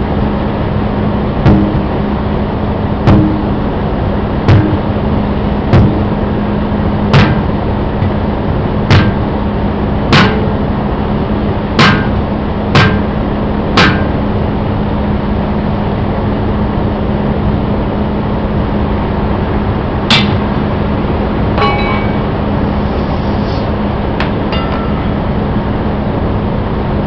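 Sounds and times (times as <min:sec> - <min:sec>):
steady low hum: 0:00.0 - 0:27.0
sledgehammer striking steel bar: 0:01.4 - 0:01.9, 0:03.0 - 0:03.6, 0:04.5 - 0:04.9, 0:05.7 - 0:06.1, 0:07.1 - 0:08.2, 0:08.9 - 0:09.4, 0:10.1 - 0:10.6, 0:11.8 - 0:13.2, 0:13.8 - 0:14.2, 0:20.1 - 0:20.5, 0:21.6 - 0:22.5, 0:24.2 - 0:25.5.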